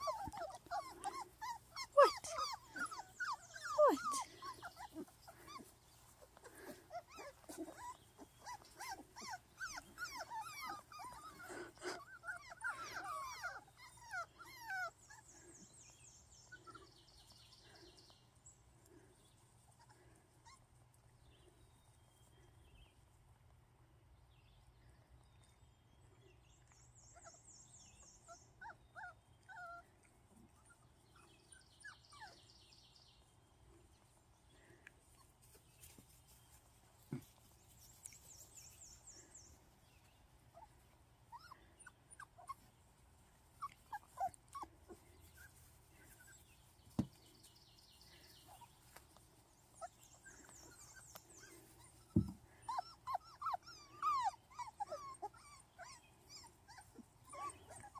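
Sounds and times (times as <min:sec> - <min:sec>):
puppies yipping and whimpering: 0:00.0 - 0:17.8, 0:27.1 - 0:32.6, 0:37.2 - 0:57.9.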